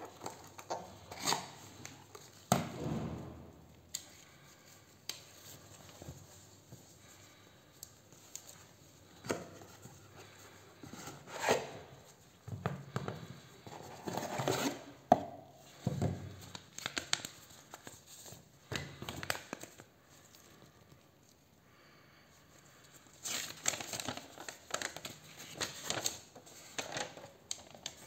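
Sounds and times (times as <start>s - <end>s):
cardboard and paper rustling: 22.8s - 28.0s.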